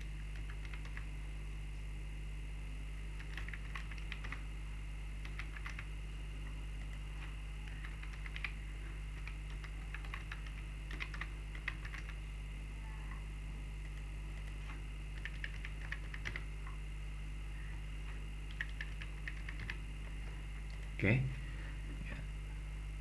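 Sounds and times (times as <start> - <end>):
computer keyboard typing: 0.0 - 1.1, 3.2 - 4.4, 5.2 - 5.9, 6.8 - 7.1, 7.7 - 12.2, 13.8 - 16.8, 18.5 - 19.8, 20.6 - 21.0
steady low hum: 0.0 - 23.0.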